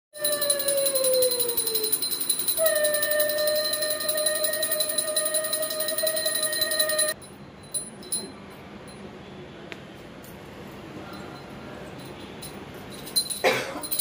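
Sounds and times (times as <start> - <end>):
small hand bell ringing: 0.2 - 9.1, 11.1 - 14.0
conch shell blown: 2.5 - 7.2.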